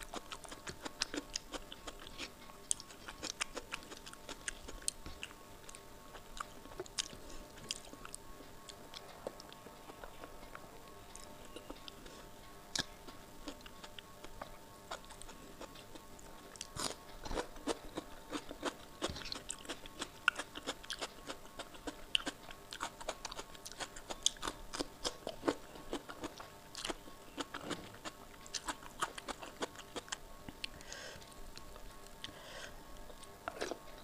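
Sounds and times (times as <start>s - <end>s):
cucumber crunching: 12.7s - 30.8s.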